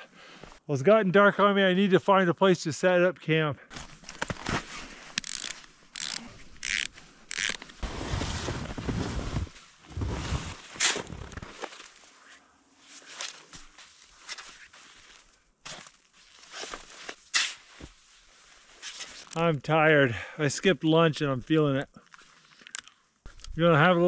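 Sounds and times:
shovel digging and scraping snow: 3.7s - 19.3s
snowshoe bindings clicking: 3.8s - 7.8s
snow crunching: 7.3s - 12.1s.

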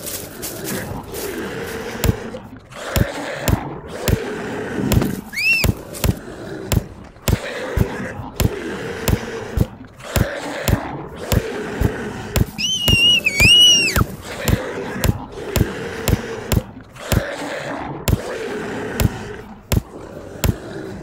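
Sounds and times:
short high squeal: 5.4s - 5.7s, 12.6s - 14.0s.

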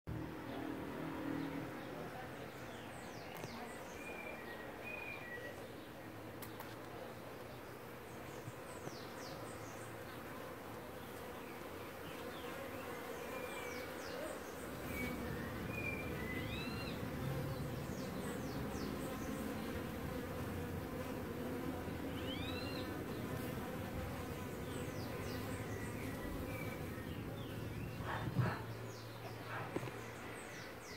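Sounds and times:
birds chirping: 0.1s - 30.9s
bees buzzing: 7.7s - 30.9s.

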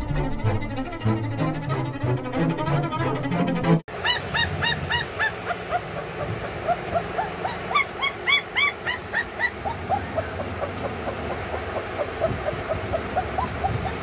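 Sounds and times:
puppy whining and yelping: 3.9s - 14.0s.

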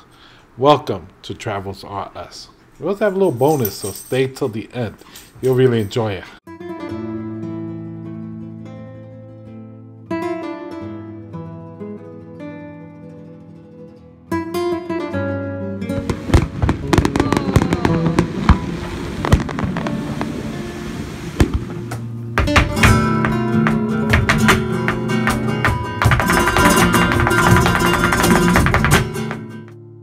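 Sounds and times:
acoustic guitar flamenco music: 6.5s - 29.9s.

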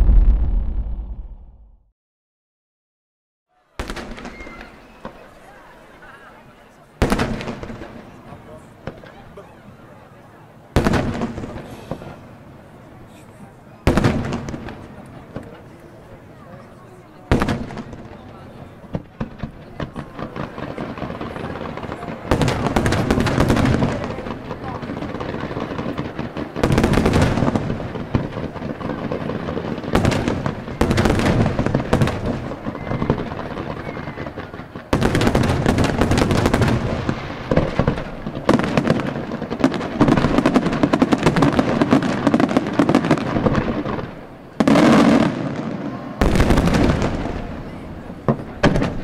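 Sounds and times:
fireworks bursting: 0.0s - 1.8s, 3.8s - 49.0s.

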